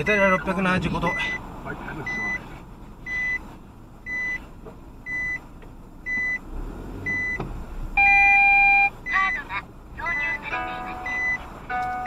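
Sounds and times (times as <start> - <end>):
reversing buzzer beeps: 7.0 - 7.4, 8.0 - 9.4, 10.1 - 11.4.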